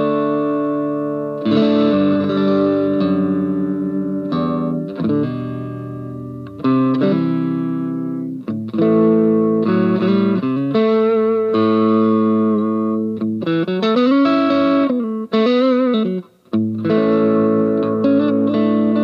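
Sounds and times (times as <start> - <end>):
electric guitar playing: 0.0 - 19.0.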